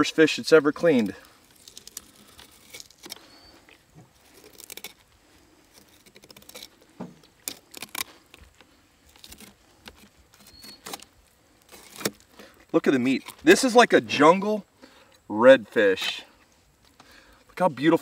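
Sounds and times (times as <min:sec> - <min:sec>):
knife cutting through fish bone: 0:01.6 - 0:03.3, 0:04.3 - 0:05.0, 0:05.7 - 0:06.8, 0:07.4 - 0:08.2, 0:09.1 - 0:11.0, 0:11.6 - 0:12.2.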